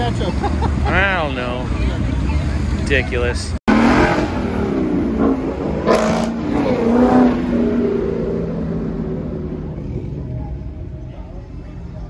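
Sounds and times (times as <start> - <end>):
car engine revving hard: 3.7 - 9.8.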